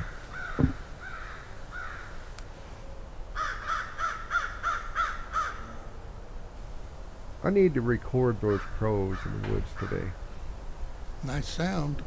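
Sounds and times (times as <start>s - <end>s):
crows cawing: 0.0s - 2.2s, 3.4s - 5.9s, 8.4s - 10.3s
low thump: 0.5s - 0.8s.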